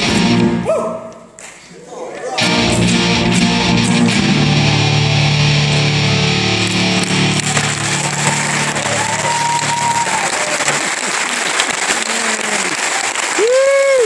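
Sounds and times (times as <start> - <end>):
electric guitar chord ringing: 2.4 - 9.4
audience applauding and cheering: 5.8 - 14.0
whoops: 7.8 - 10.8, 12.1 - 14.0.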